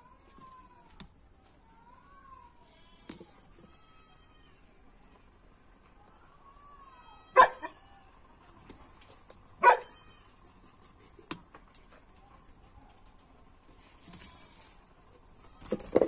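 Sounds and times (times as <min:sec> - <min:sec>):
dog barking: 0:07.4 - 0:07.8, 0:09.6 - 0:10.0.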